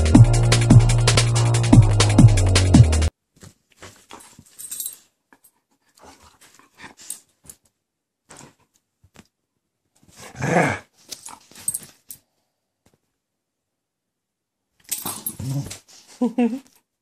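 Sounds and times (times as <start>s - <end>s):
dog play growl: 10.2s - 10.9s, 15.0s - 15.8s.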